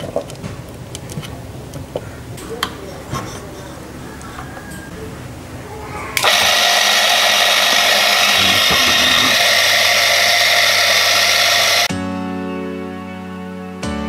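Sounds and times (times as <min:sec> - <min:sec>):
power tool motor whirring: 0:06.2 - 0:11.9
music: 0:11.9 - 0:14.0.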